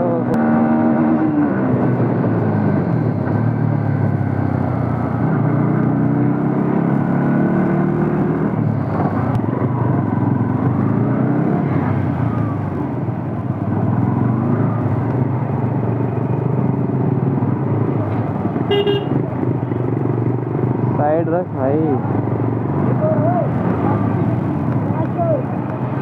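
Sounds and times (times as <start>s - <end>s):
road noise: 0.0s - 26.0s
horn honk: 18.7s - 19.2s.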